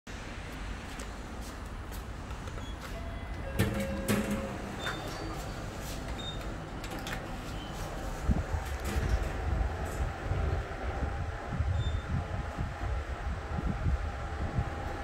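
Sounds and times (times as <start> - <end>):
lift doors sliding: 2.2 - 10.6
short tone: 2.6 - 5.4.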